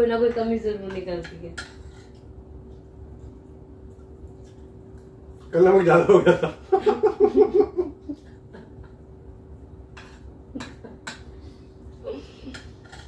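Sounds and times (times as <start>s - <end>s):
faint steady hum: 0.0s - 13.0s
person laughing: 6.1s - 9.0s.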